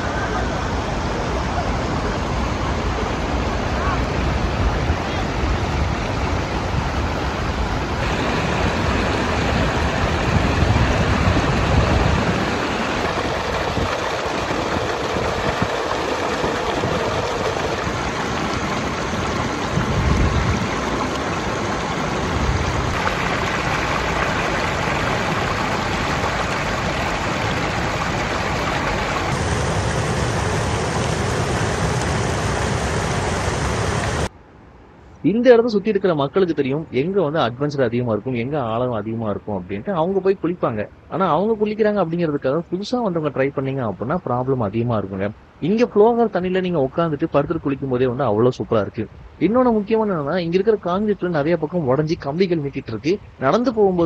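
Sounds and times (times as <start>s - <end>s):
wind buffeting microphone: 0.0s - 34.3s
river water rushing: 0.0s - 34.9s.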